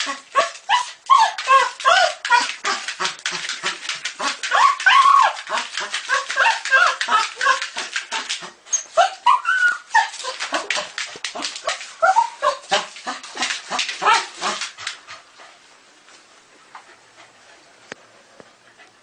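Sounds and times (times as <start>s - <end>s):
dog yipping and barking: 0.0s - 2.9s, 4.4s - 10.9s, 11.6s - 12.9s, 13.7s - 14.6s.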